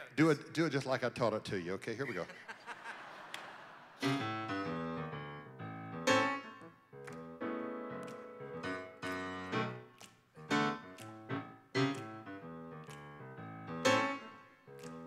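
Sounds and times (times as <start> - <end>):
piano playing hymn chords: 4.0 - 15.0.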